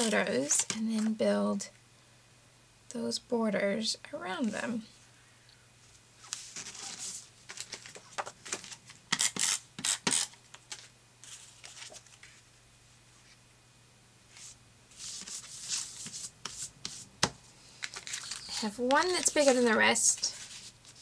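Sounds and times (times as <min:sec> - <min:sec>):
paper rustling: 0:05.9 - 0:09.4, 0:10.5 - 0:12.5, 0:14.3 - 0:21.0
hands rubbing photo on paper: 0:14.3 - 0:17.1, 0:18.2 - 0:21.0.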